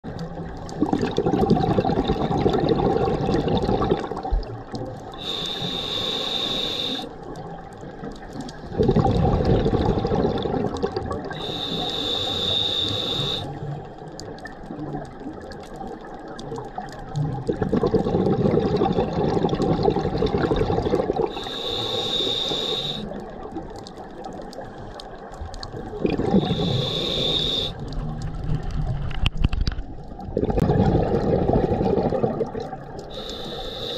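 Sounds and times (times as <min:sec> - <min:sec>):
exhaled bubbles rushing: 0:00.1 - 0:05.2, 0:08.3 - 0:11.6, 0:14.4 - 0:21.6, 0:23.1 - 0:33.2
scuba diver breathing underwater: 0:05.1 - 0:07.2, 0:08.7 - 0:14.0, 0:17.6 - 0:23.4, 0:25.8 - 0:28.0, 0:30.5 - 0:33.9
hissing inhale: 0:05.2 - 0:07.2, 0:11.3 - 0:13.7, 0:21.3 - 0:23.3, 0:26.3 - 0:27.9, 0:33.0 - 0:33.9.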